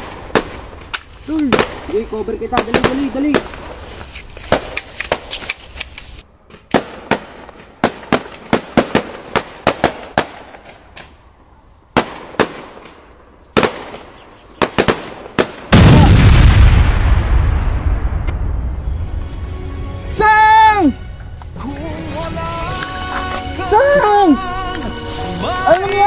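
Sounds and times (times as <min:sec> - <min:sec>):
gunshots: 0:13.6 - 0:18.6
loud explosion with deep rumble: 0:15.7 - 0:19.2.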